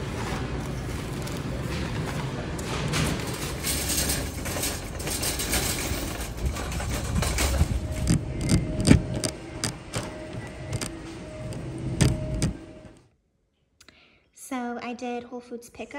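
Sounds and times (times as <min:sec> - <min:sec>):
shopping cart rattling: 0:00.0 - 0:11.0
clicks and knocks: 0:02.8 - 0:12.6.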